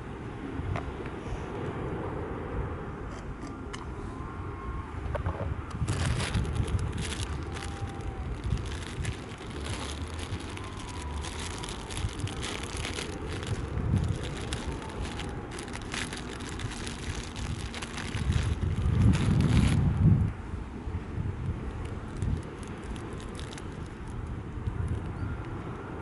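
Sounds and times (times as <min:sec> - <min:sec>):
wind rumbling on microphone: 0:00.0 - 0:26.0.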